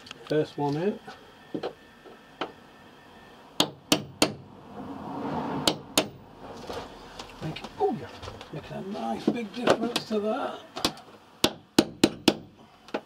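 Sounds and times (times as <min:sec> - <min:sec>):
hammer striking nail into wood: 0:03.6 - 0:04.4, 0:05.6 - 0:06.2, 0:11.4 - 0:12.5.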